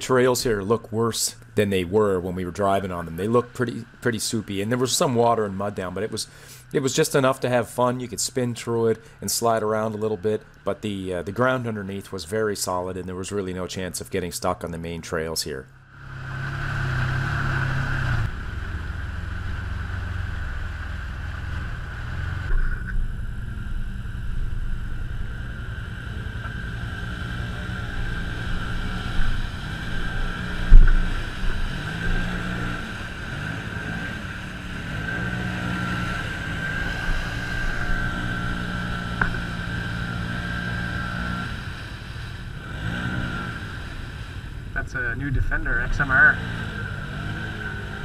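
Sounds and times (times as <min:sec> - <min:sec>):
utility vehicle engines revving: 0:00.0 - 0:48.0
vehicle churning through mud: 0:15.9 - 0:48.0.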